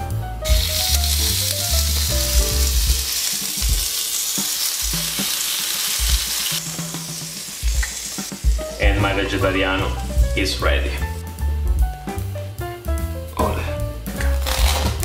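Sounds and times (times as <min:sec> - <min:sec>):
background music with bass: 0:00.0 - 0:03.9, 0:06.6 - 0:15.0
sandwich sizzling on grill: 0:00.4 - 0:08.9, 0:14.2 - 0:15.0.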